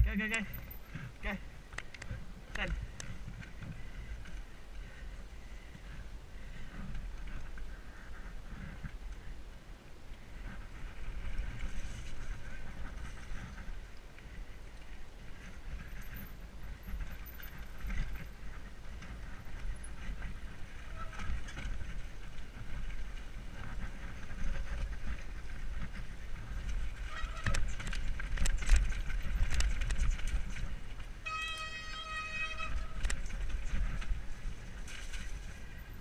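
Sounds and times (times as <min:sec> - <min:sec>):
bike rattling over loose stones: 0:00.0 - 0:05.2, 0:10.4 - 0:36.0
wind rumbling over microphone: 0:00.0 - 0:31.3, 0:32.0 - 0:36.0
tyres rolling on dirt: 0:10.4 - 0:36.0.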